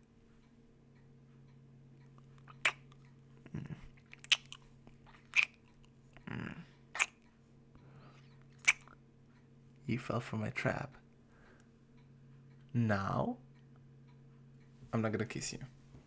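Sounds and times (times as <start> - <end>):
lip smacking kisses: 2.4 - 3.0, 4.0 - 5.6, 7.0 - 7.2, 8.6 - 9.0
soft breaths: 4.6 - 8.6, 11.0 - 12.7.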